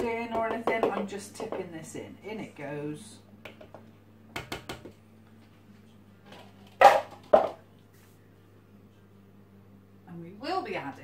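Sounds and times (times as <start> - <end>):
bowl knocking on steel bowl: 0.0 - 1.6.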